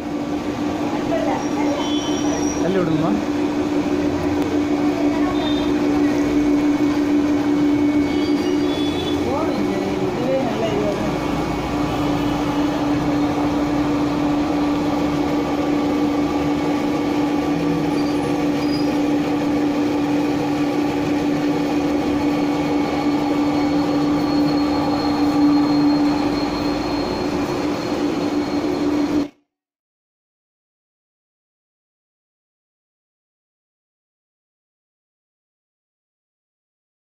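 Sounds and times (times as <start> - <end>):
rice grinder running: 0.0 - 29.3.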